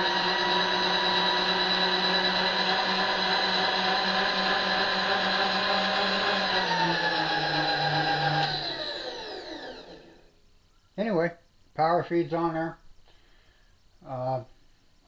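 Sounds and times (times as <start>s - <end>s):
power feed motor whining: 0.0s - 10.3s.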